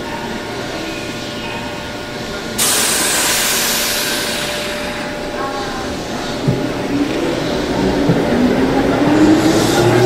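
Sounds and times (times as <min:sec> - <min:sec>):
compressed air hissing: 0:02.6 - 0:05.1.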